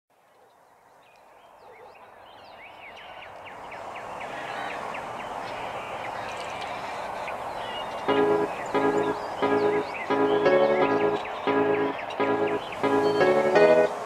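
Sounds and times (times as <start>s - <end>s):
birds chirping: 0.2s - 14.0s
steady rushing noise: 6.8s - 14.0s.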